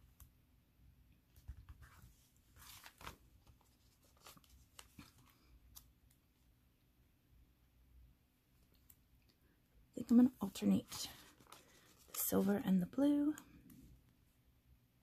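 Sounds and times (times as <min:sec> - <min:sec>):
paper rustle: 0:01.3 - 0:05.9, 0:10.5 - 0:12.6
light ticks of handling paper: 0:01.3 - 0:06.5, 0:10.4 - 0:14.2.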